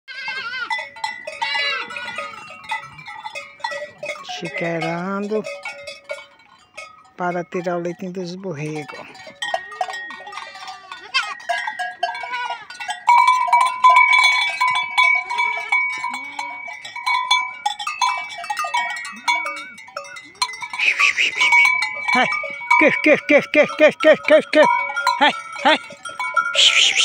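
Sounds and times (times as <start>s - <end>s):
goats bleating: 0.1s - 3.1s, 4.1s - 4.9s, 9.0s - 12.9s, 20.7s - 27.0s
goat bells clanking: 0.1s - 27.0s.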